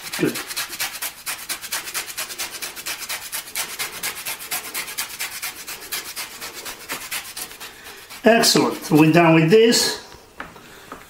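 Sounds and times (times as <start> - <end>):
lemon scraping on rasp grater: 0.0 - 9.4.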